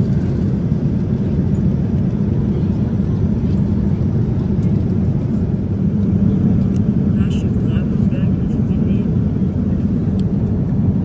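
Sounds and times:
airliner cabin rumble: 0.0s - 11.0s.

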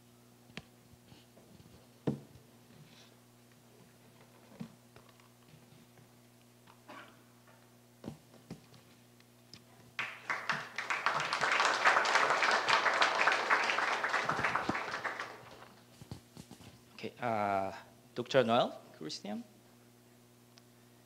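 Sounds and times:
audience clapping: 10.0s - 15.8s.

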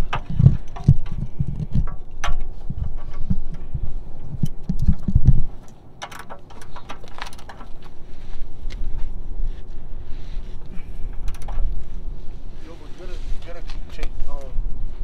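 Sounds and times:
low rumbling: 0.0s - 15.0s
wrench clicking: 5.6s - 7.8s.

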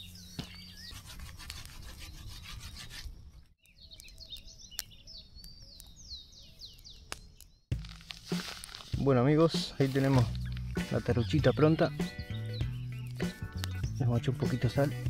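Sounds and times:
bird singing whistled notes: 0.0s - 1.0s, 3.6s - 7.7s, 9.7s - 15.0s
rough scraping noise: 8.2s - 10.4s.

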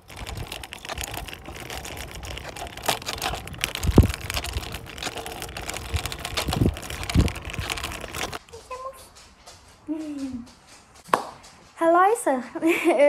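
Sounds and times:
wind buffeting microphone: 0.0s - 8.4s
scooter wheels rattling on asphalt: 0.0s - 8.5s.

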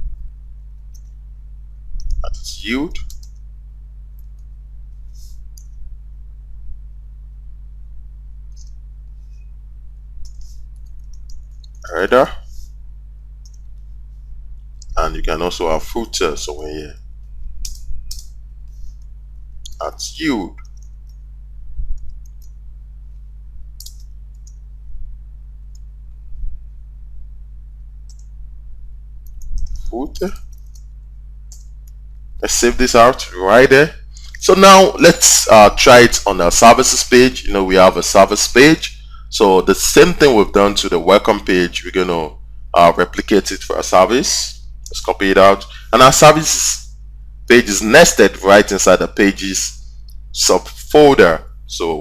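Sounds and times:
low steady hum: 0.0s - 52.0s
keystrokes on computer keyboard: 23.8s - 24.6s.

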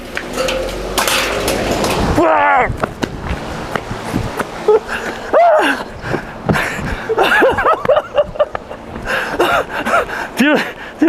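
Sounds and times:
steady rushing noise: 0.0s - 11.0s
people exclaiming and laughing: 4.6s - 6.0s.

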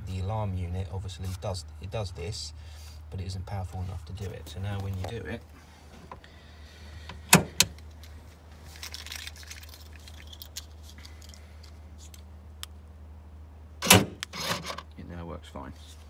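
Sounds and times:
car boot latch clicking: 7.2s - 7.8s, 13.8s - 14.7s
latch clunk: 7.2s - 7.8s, 13.8s - 14.8s.

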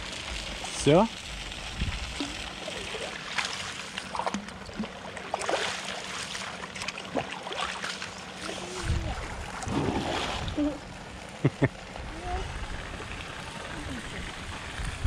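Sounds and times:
water splashing and sloshing: 0.0s - 11.4s.

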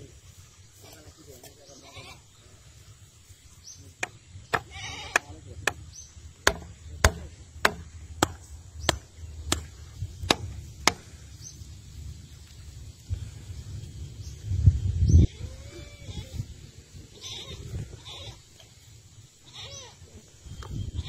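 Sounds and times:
hammer knocking on wooden post: 4.0s - 9.7s.

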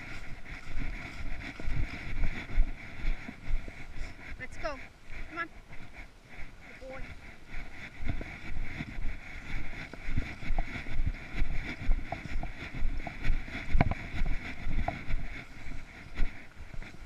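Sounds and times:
footsteps on grass and leaves: 0.0s - 4.4s.

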